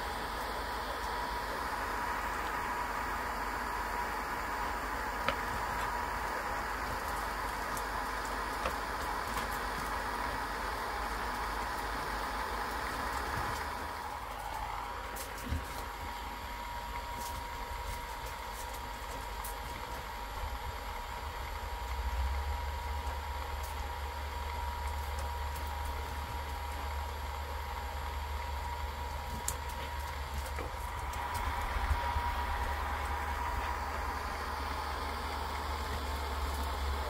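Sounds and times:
electric fan motor whine: 0.0 - 37.0.

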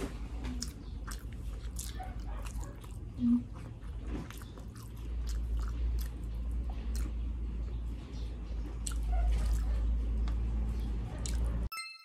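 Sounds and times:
wet chewing and mouth smacks: 0.4 - 7.3, 8.7 - 10.5, 11.2 - 11.7.

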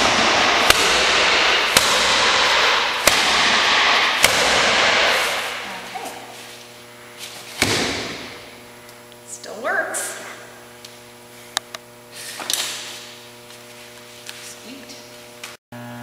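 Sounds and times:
umbrella smacking punching bag: 0.0 - 5.5, 7.5 - 8.4
steady hiss: 0.0 - 9.1.

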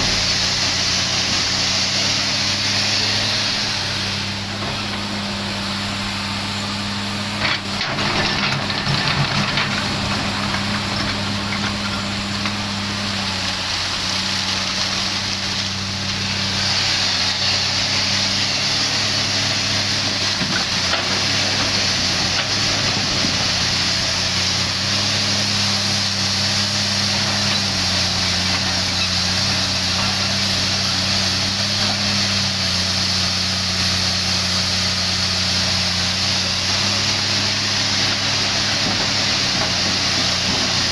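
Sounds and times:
steady hiss: 0.0 - 7.0
excavator diesel engine working: 0.0 - 40.9.

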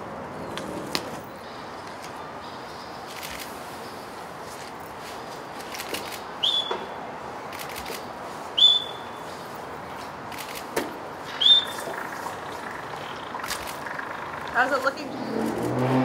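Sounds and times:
short high whistle blasts: 6.4 - 6.8, 8.6 - 9.1, 11.4 - 11.8.

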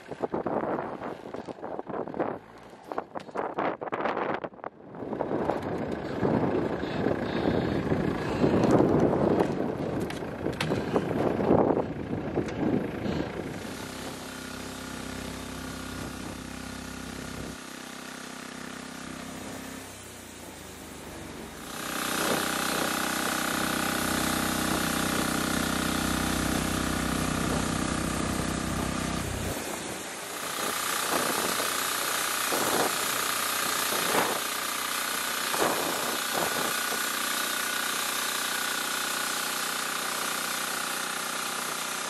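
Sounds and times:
diesel engine hum: 0.0 - 42.0
high bandsaw blade whine: 12.9 - 42.0.

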